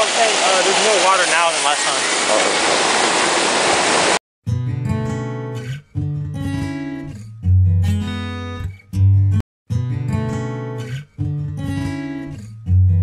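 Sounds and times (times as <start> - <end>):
waterfall rushing: 0.0 - 4.2
acoustic guitar music: 4.5 - 13.0.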